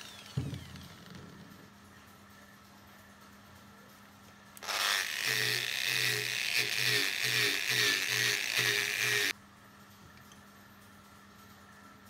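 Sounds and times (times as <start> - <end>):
angle grinder grinding metal: 4.6 - 9.3.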